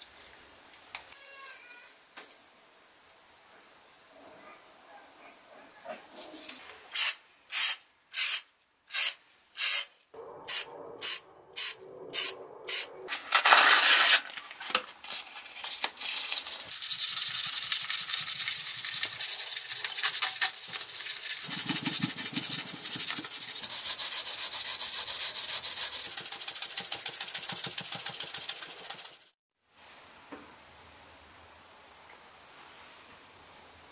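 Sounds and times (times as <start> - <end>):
aerosol spray bursts: 7.0 - 9.9
sandpaper rubbing on metal: 13.4 - 14.3, 16.0 - 29.4.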